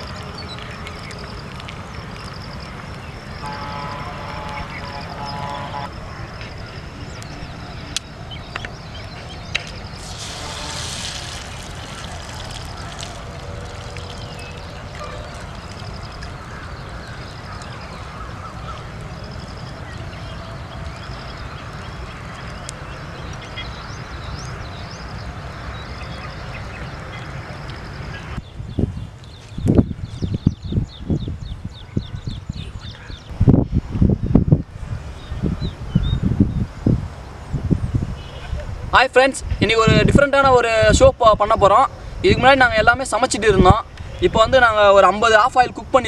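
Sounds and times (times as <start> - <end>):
egg sizzling in pan: 10.0 - 14.3.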